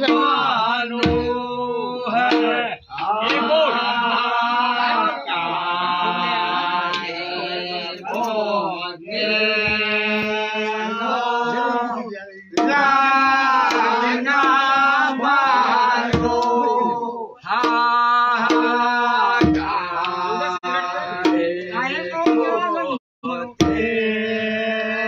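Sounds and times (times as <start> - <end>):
sharp percussive strikes: 0.0 - 1.6, 2.2 - 3.9, 12.6 - 16.7, 17.5 - 19.9, 21.2 - 22.9, 23.6 - 24.0
men singing: 0.0 - 25.0.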